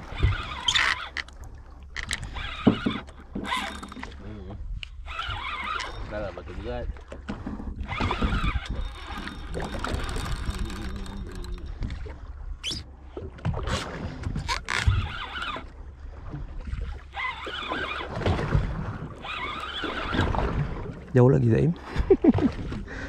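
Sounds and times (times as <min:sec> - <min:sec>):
water noise: 0:00.0 - 0:23.0
wind: 0:00.0 - 0:23.0.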